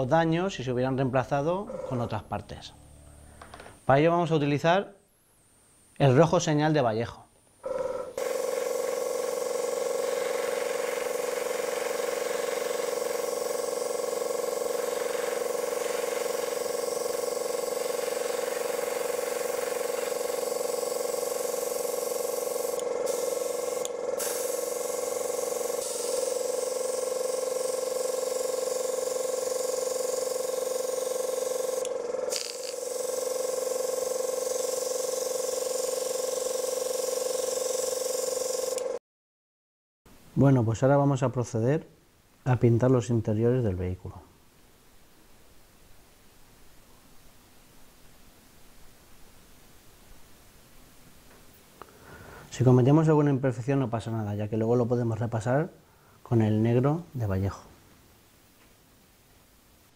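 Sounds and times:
compressor humming: 0.0 - 4.6, 7.6 - 39.0
airbrush hissing: 8.2 - 38.8.

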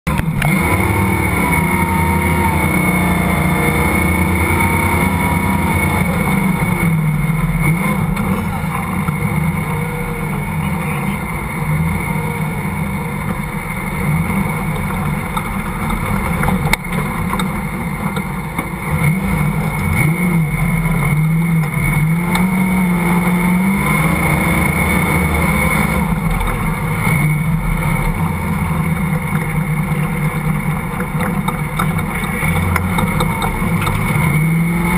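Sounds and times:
off-road vehicle engine revving: 0.0 - 34.9.

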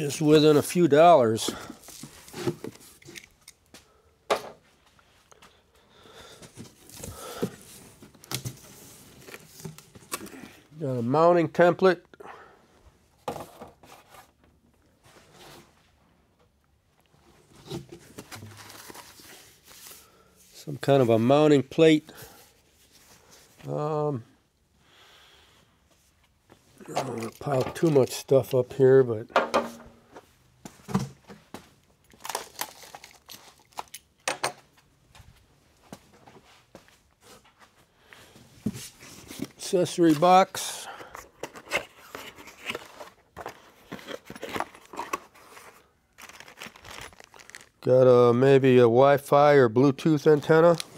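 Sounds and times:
packing scraping and rustling: 17.4 - 20.6, 38.8 - 47.8
packing material crinkling: 32.1 - 34.0, 41.4 - 47.9.

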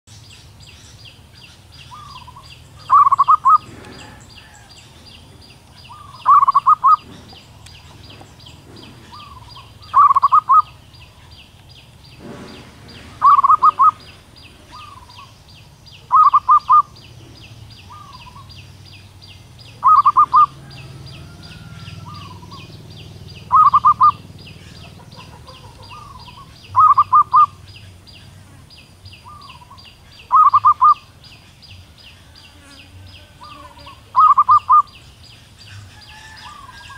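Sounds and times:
dove cooing: 1.9 - 4.7, 5.8 - 7.4, 8.1 - 10.8, 12.2 - 15.3, 16.1 - 17.3, 17.9 - 18.5, 19.8 - 27.8, 29.3 - 31.1, 33.4 - 35.0.

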